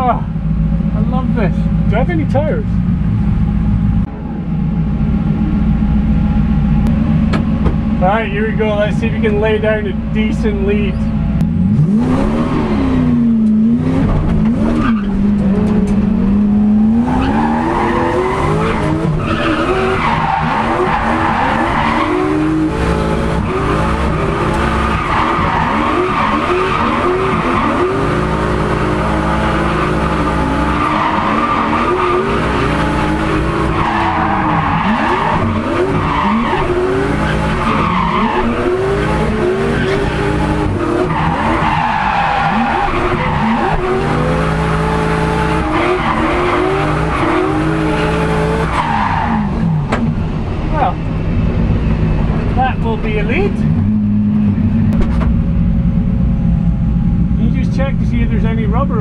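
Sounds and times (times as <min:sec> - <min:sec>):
tyres skidding and squealing: 0:06.2 - 0:55.4
engine revving: 0:11.4 - 0:55.3.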